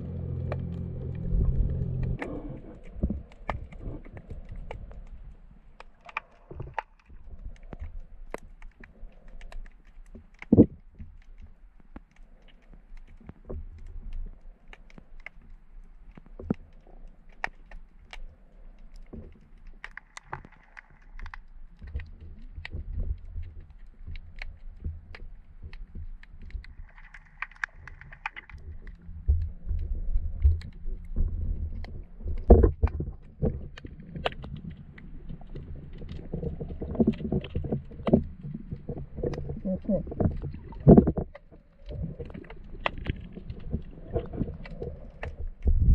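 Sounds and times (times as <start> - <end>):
low motor hum: 0.0 - 4.1
muffled rumble of moving water: 0.0 - 45.9
sharp clicks and ticks: 18.9 - 45.9.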